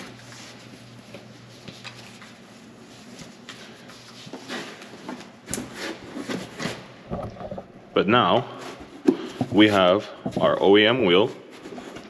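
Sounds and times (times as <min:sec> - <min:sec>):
fabric and cardboard rustling: 0:00.0 - 0:07.0.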